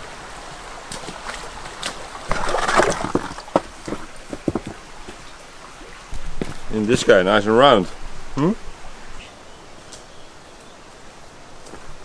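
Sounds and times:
stream rushing: 0:00.0 - 0:12.0
boots wading through water: 0:00.3 - 0:07.1
stones knocking in water: 0:01.8 - 0:04.9.

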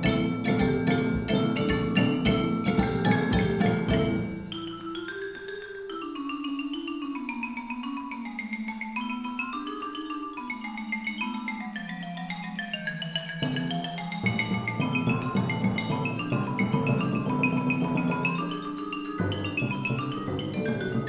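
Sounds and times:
background music with struck notes: 0:00.0 - 0:05.1, 0:13.2 - 0:21.0.

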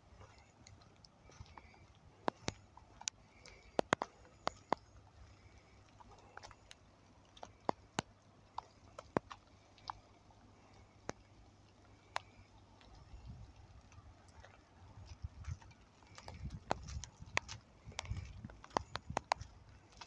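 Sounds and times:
low steady hum: 0:00.0 - 0:20.0
sharp taps and clicks: 0:16.2 - 0:19.5.

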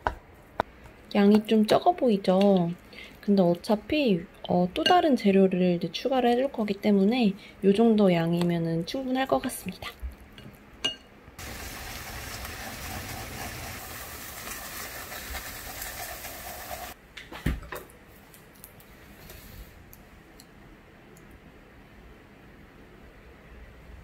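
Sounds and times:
eggs sizzling in frying pan: 0:11.4 - 0:17.0.

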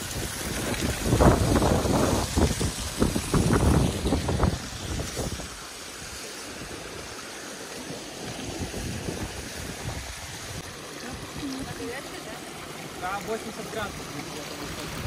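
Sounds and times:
wind buffeting microphone: 0:00.0 - 0:06.8, 0:08.4 - 0:11.9
rocky stream rushing: 0:00.0 - 0:15.0.

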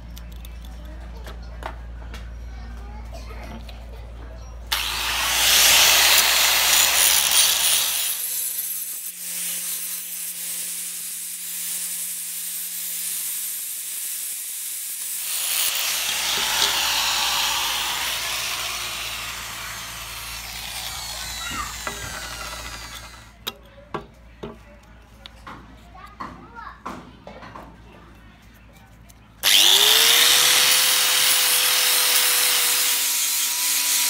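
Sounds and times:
angle grinder on steel: 0:04.7 - 0:23.4, 0:29.4 - 0:34.0.

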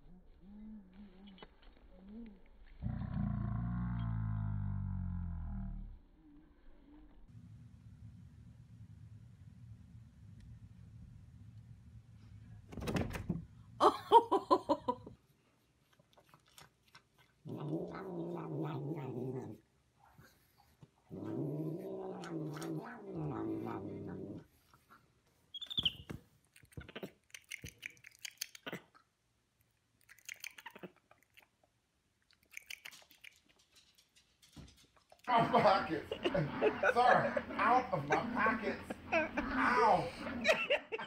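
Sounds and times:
cat growling: 0:17.4 - 0:19.6, 0:21.1 - 0:24.6, 0:35.2 - 0:41.0
monkey squeaks and clicks: 0:25.5 - 0:26.2, 0:26.8 - 0:28.8, 0:30.1 - 0:30.9.

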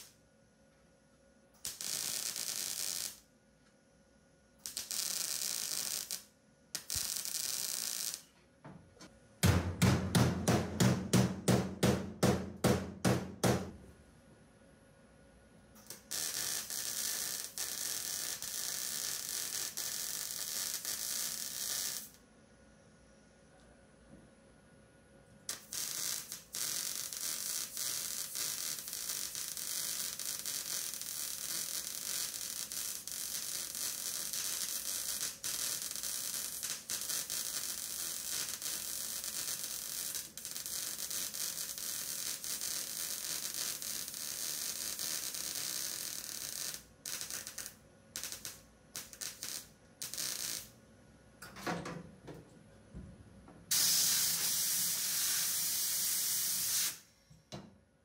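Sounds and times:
welder arc crackling and hissing: 0:00.0 - 0:00.2, 0:01.6 - 0:03.3, 0:04.6 - 0:08.4, 0:15.7 - 0:22.2, 0:25.3 - 0:50.8, 0:53.7 - 0:57.1.

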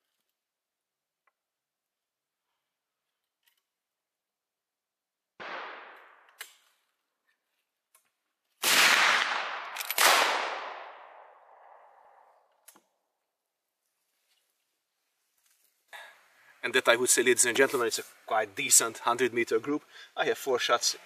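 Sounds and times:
rifle gunshots with echo: 0:05.4 - 0:06.3, 0:08.6 - 0:12.2.

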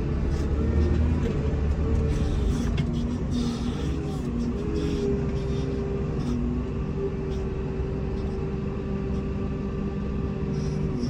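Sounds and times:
diesel engine rumbling under load: 0:00.0 - 0:11.0.

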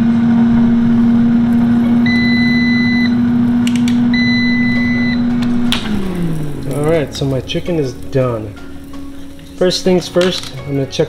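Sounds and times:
air fryer humming: 0:00.0 - 0:11.0
appliance beeps: 0:01.6 - 0:07.1
appliance click: 0:03.0 - 0:07.0.

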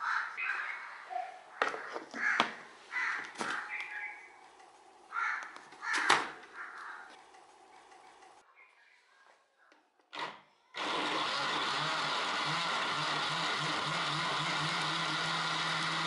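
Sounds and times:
crows cawing: 0:00.0 - 0:04.2, 0:05.1 - 0:07.2.

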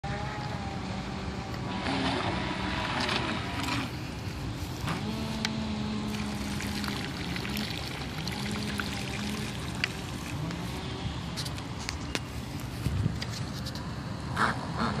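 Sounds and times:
water pump hum: 0:00.0 - 0:14.8
electric motor whine: 0:04.8 - 0:11.4.

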